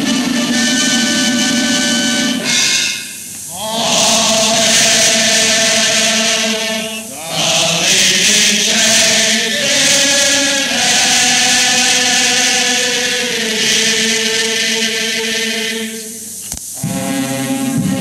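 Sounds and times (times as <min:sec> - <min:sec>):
chorus singing: 0:00.0 - 0:18.0
orchestra playing: 0:16.8 - 0:18.0.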